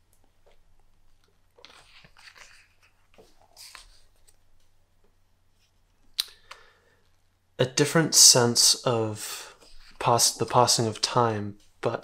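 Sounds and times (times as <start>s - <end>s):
paper page rustling: 1.5s - 4.4s.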